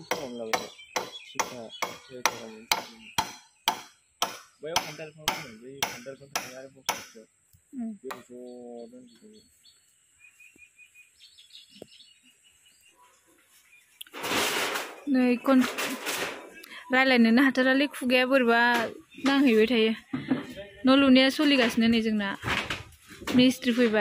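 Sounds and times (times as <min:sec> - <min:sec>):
hammer blows on wooden plank: 0:00.0 - 0:07.2
birds chirping faintly: 0:00.0 - 0:22.4.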